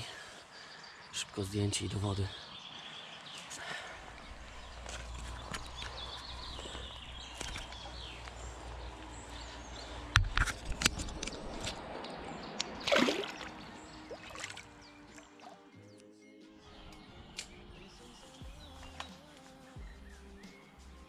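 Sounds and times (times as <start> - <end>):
fish splashing in water: 12.6 - 14.7.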